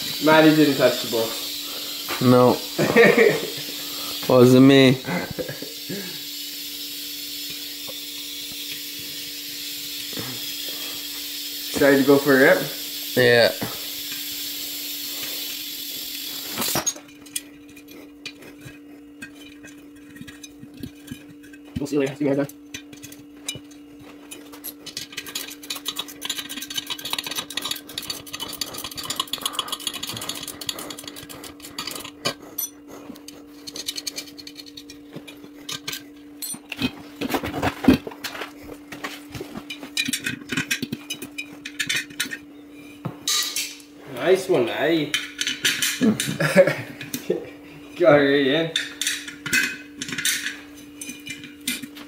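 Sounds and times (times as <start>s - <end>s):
steady low hum: 0.0s - 52.0s.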